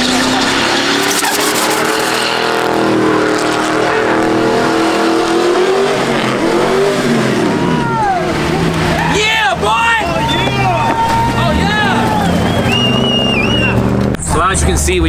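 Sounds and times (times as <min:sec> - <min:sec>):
tyres spinning and hissing on pavement: 0:00.0 - 0:02.5
truck engine at high revs: 0:00.0 - 0:15.0.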